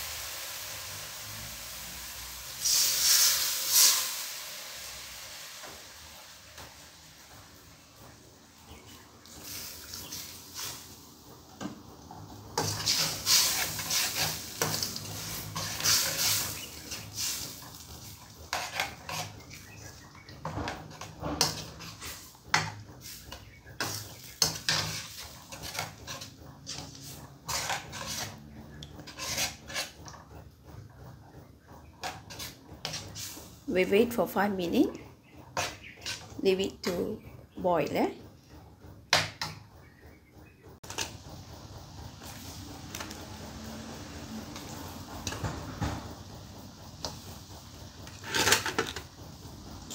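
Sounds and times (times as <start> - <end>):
spoon scraping cooking pot: 12.6 - 30.4, 32.0 - 33.4, 35.4 - 37.1.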